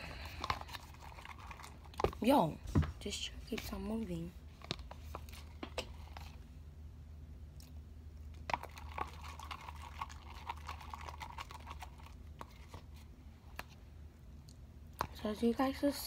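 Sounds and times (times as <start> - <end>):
slime squelching as stirred: 0.0 - 2.5, 4.5 - 6.5, 7.5 - 13.8.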